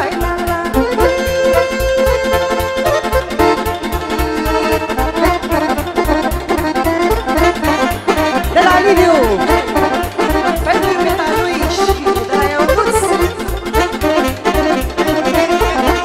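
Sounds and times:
accordion: 0.0 - 16.0
bass beat: 0.0 - 16.0
folk dance music: 0.0 - 16.0.

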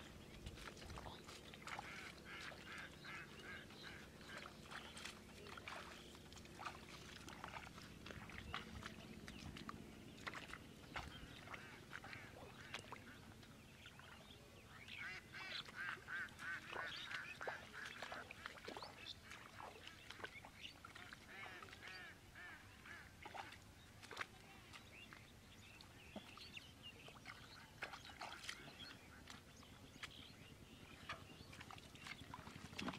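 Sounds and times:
waterfowl calling: 1.0 - 8.9, 10.2 - 13.4, 14.7 - 24.8.

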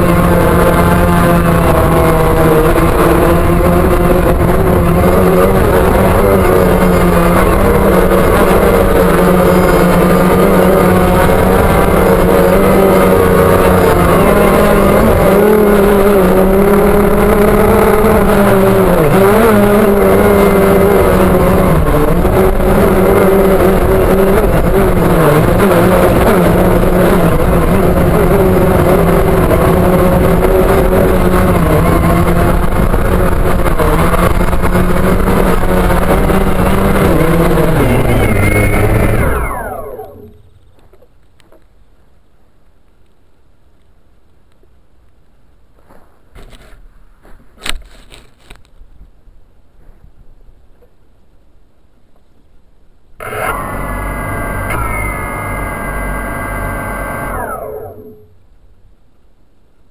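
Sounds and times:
drone propellers buzzing: 0.0 - 40.8, 53.2 - 58.4.

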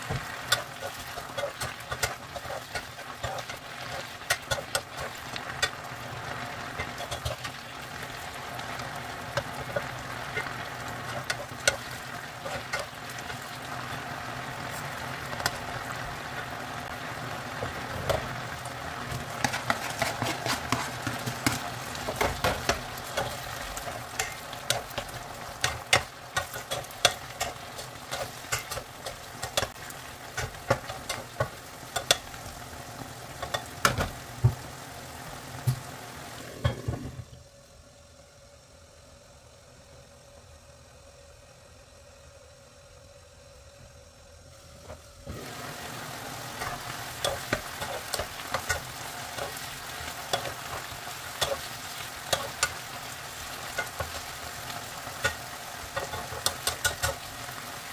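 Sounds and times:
chicken sizzling in a frying pan: 0.0 - 37.8, 42.9 - 57.9
plastic spatula scraping a pan: 19.1 - 23.5.

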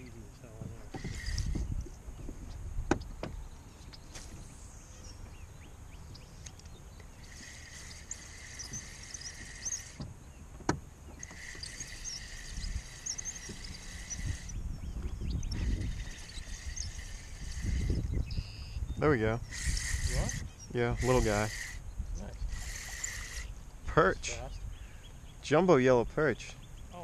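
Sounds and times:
wind rumble on microphone: 0.0 - 25.0
water lapping against hull: 0.5 - 1.9, 11.0 - 18.7, 22.4 - 23.6
fishing reel whirring: 1.0 - 1.8, 7.1 - 10.0, 11.1 - 18.8, 19.4 - 23.6.

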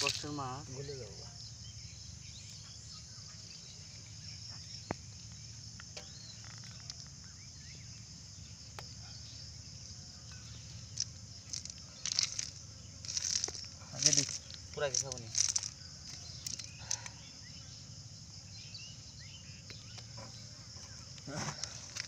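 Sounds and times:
insects droning: 0.0 - 22.0
low rural background hum: 0.0 - 22.0
scraping and rustling: 10.9 - 17.1, 20.0 - 22.0.

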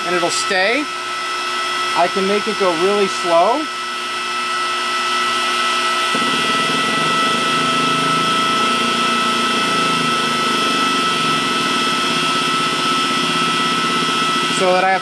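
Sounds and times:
hydraulic pump motor whine: 0.0 - 15.0
low buzzing drone: 5.8 - 14.6.

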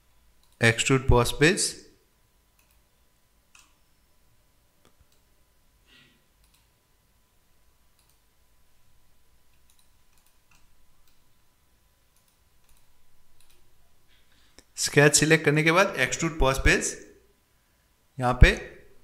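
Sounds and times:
computer mouse clicks: 2.5 - 2.9, 3.5 - 3.8, 4.8 - 5.3, 6.4 - 6.8, 7.9 - 8.2, 9.5 - 11.3, 12.1 - 13.7.

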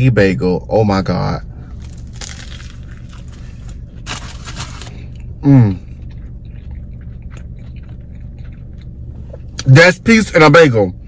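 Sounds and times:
low hum inside car: 0.0 - 11.0
man chewing: 1.7 - 9.7
man humming mmm: 5.4 - 5.9.

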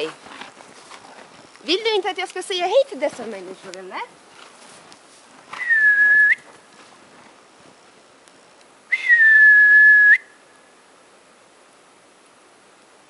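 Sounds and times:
whistled note: 5.6 - 6.5, 8.9 - 10.3.

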